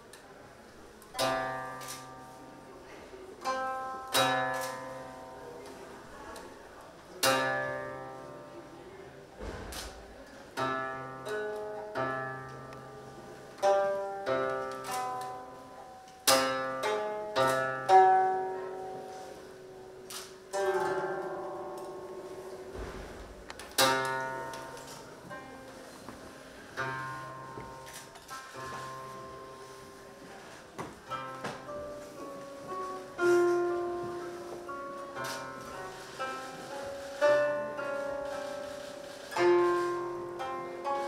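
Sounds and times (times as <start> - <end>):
plucked string instrument chords: 1.1 - 2.7, 3.4 - 6.6, 7.2 - 8.7, 9.9 - 26.0.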